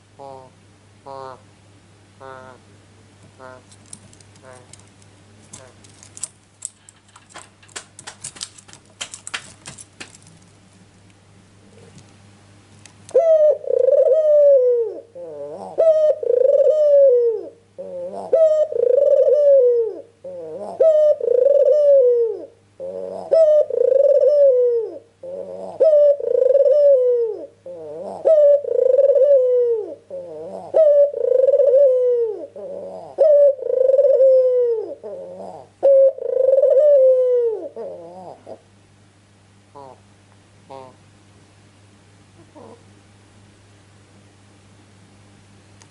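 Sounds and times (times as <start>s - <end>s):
dove cooing: 0.0s - 1.5s, 2.2s - 2.7s, 3.3s - 3.7s, 13.1s - 38.7s, 39.7s - 41.0s, 42.4s - 42.9s
light clicks and rattles: 3.7s - 11.1s.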